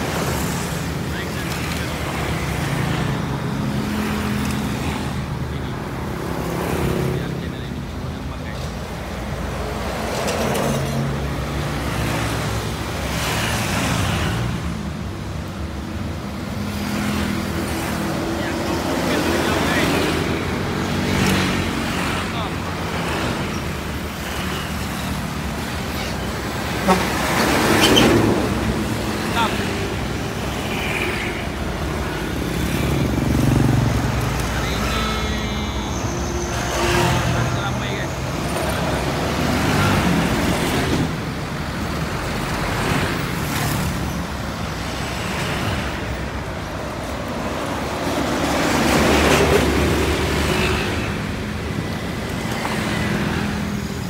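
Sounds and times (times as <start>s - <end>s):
motorcycles passing: 0.0s - 54.0s
tyres on road: 0.0s - 54.0s
truck engine hum: 14.6s - 54.0s.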